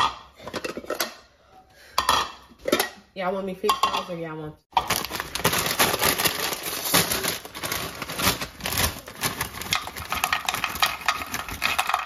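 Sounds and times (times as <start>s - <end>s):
dishes and utensils clattering: 0.0s - 1.3s, 1.9s - 4.2s, 9.5s - 12.0s.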